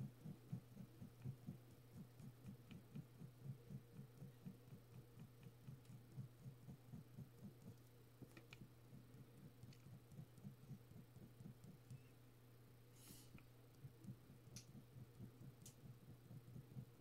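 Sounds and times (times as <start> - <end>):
ballpoint pen strokes on paper: 0.0 - 12.1
steady low hum: 0.0 - 17.0.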